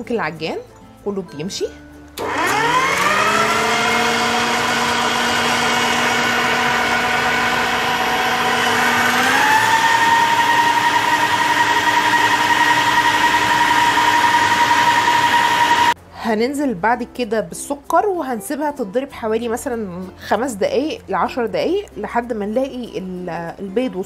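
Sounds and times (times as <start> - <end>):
stand mixer motor whine: 2.2 - 16.0.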